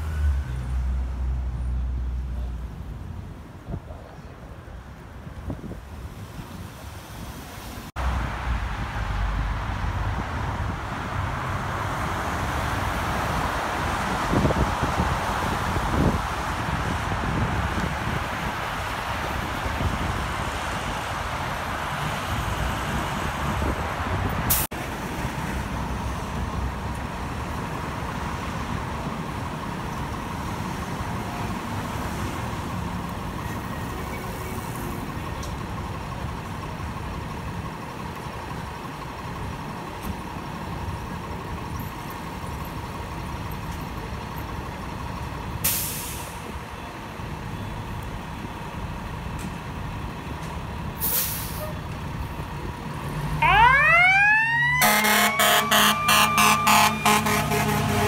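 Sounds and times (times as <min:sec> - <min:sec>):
traffic rushing past: 0:00.0 - 0:41.6, 0:42.2 - 0:58.0
air brakes hissing: 0:45.6 - 0:46.5, 0:51.0 - 0:51.8.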